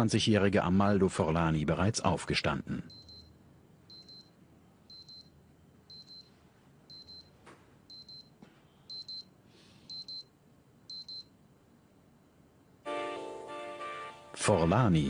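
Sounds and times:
wristwatch alarm double beeps: 0:02.9 - 0:03.3, 0:03.9 - 0:04.3, 0:04.9 - 0:05.3, 0:05.9 - 0:06.3, 0:06.9 - 0:07.3, 0:07.9 - 0:08.3, 0:08.9 - 0:09.3, 0:09.9 - 0:10.3, 0:10.9 - 0:11.3.

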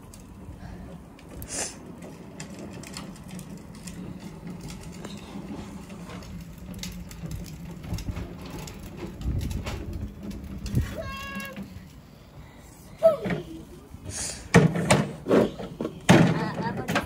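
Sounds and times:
wind rumbling on microphone: 0:06.5 - 0:11.5.

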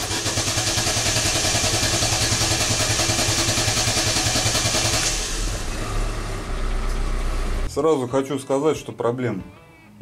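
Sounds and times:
car starter cranking engine: 0:00.0 - 0:07.6
engine hum: 0:00.0 - 0:07.7.

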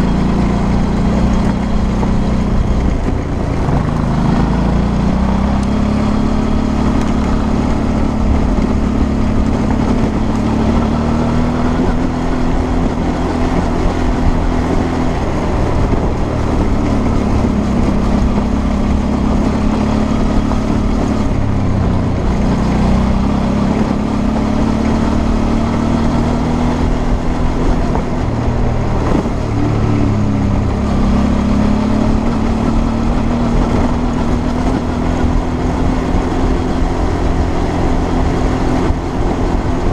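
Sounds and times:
motorcycle engine running: 0:00.0 - 0:39.9.

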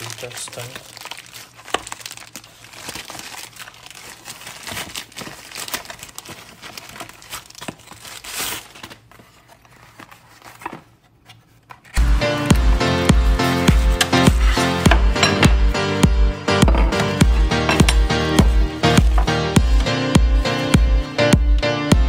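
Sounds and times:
plastic wrapping crinkling and tearing: 0:00.0 - 0:15.0
music with steady beat: 0:12.0 - 0:22.0.

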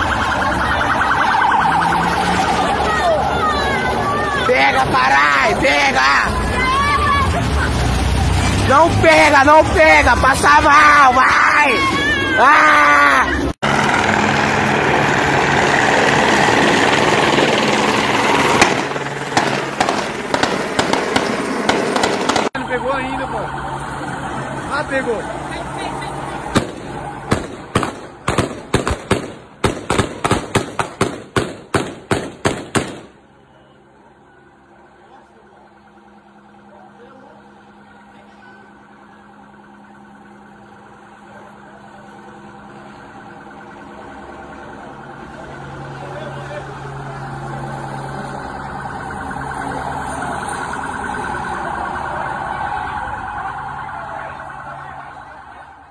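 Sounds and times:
electronic siren warbling: 0:00.0 - 0:06.8, 0:34.8 - 0:55.9
gunshots: 0:18.5 - 0:22.6, 0:26.5 - 0:33.2.

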